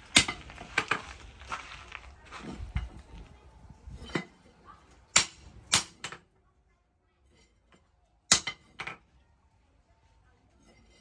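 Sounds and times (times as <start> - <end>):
hammer striking steel on anvil: 5.1 - 6.2, 8.3 - 8.8.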